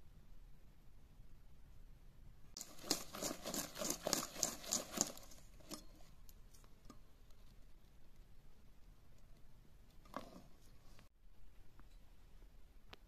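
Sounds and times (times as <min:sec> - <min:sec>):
whisk beating batter in metal bowl: 0:02.6 - 0:06.1.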